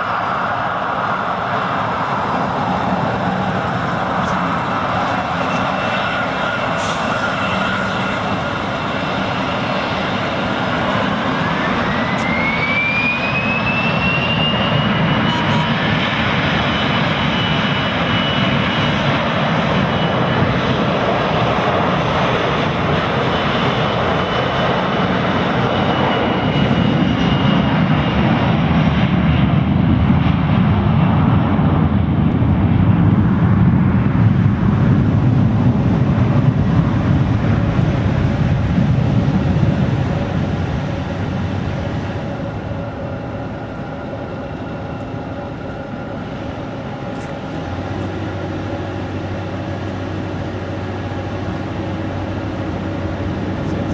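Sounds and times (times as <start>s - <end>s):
high jet whine: 0.0s - 53.9s
jet engines roaring: 0.0s - 53.9s.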